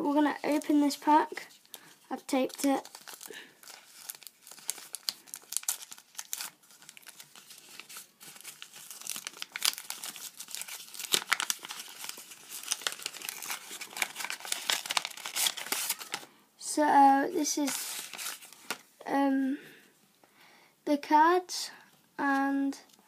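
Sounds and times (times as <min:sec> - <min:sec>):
paper crinkling and tearing: 0:00.3 - 0:16.3, 0:17.6 - 0:18.8.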